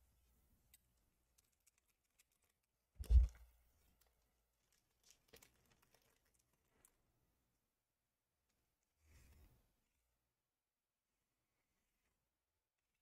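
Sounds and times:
foil crinkling: 4.0s - 7.0s.

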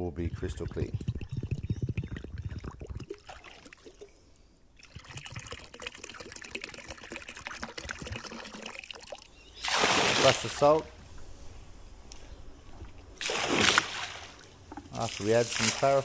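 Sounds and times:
water pouring and trickling: 0.1s - 4.2s, 4.8s - 10.4s, 14.4s - 16.0s.

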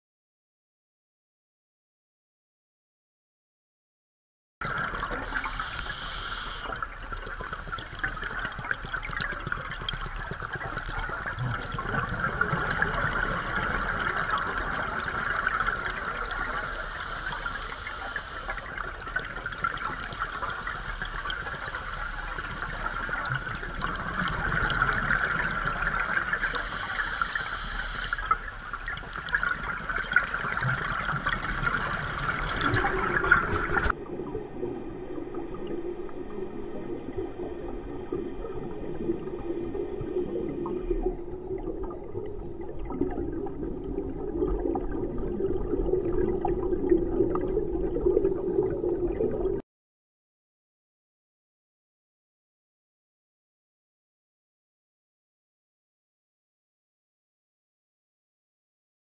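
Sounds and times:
exhaled regulator bubbles: 4.6s - 49.6s
muffled underwater hiss: 4.8s - 33.9s.

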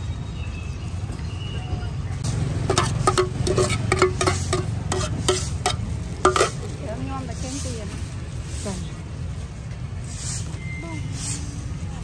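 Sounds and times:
spoon scraping metal pot: 2.6s - 6.7s.

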